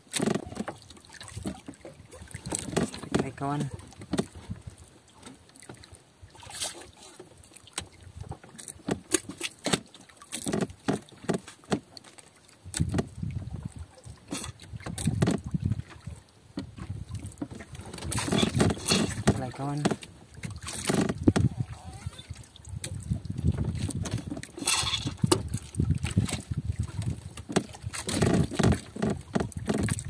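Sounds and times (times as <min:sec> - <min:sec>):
water lapping against boat hull: 0:00.0 - 0:30.0
knocks and clicks: 0:17.4 - 0:20.1.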